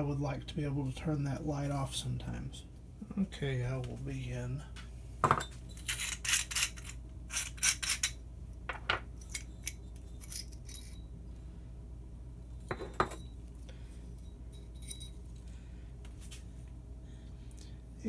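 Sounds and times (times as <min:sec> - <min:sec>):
porcelain clinking: 0:07.6 - 0:11.2, 0:12.6 - 0:13.4, 0:14.2 - 0:15.4.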